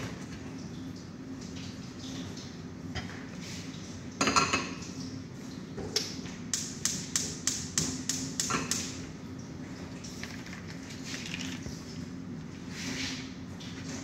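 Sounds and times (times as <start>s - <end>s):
dishes clattering: 4.2s - 4.8s.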